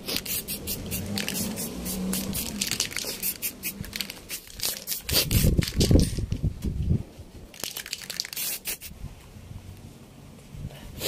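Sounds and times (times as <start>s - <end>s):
spray paint can hissing: 0.0s - 6.1s, 7.6s - 8.9s.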